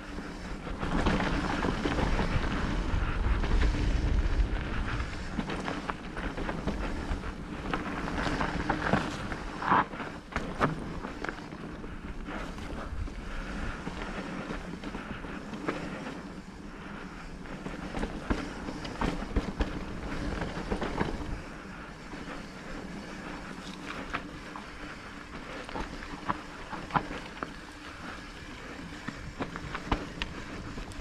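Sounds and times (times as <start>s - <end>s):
bike knocking and rattling: 0.0s - 31.0s
electric bike motor hum: 0.0s - 31.0s
wind on microphone: 0.6s - 9.5s.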